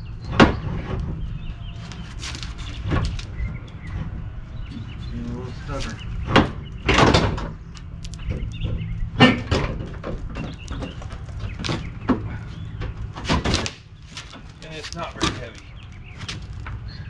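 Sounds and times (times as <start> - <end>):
bumper clunking: 0.0 - 17.0.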